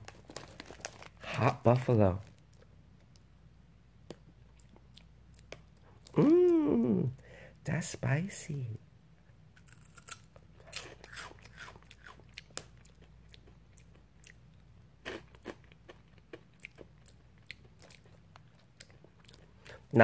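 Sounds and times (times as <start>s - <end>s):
person chewing crunchy snack: 9.6s - 14.4s, 15.0s - 19.9s.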